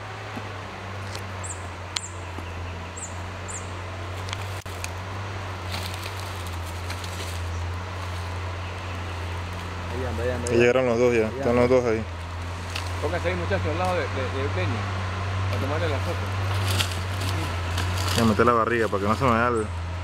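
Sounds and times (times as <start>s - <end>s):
steady low hum: 0.0s - 20.0s
high-pitched bird call notes: 1.4s - 3.8s.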